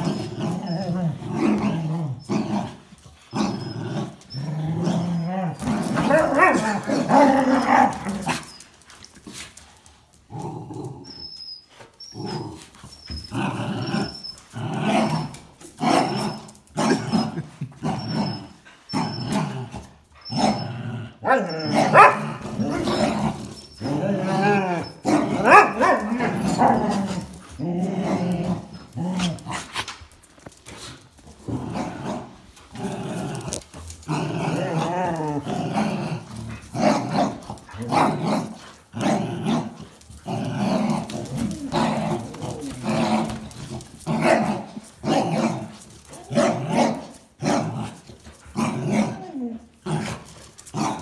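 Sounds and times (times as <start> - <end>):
dogs play growling: 0.0 - 51.0.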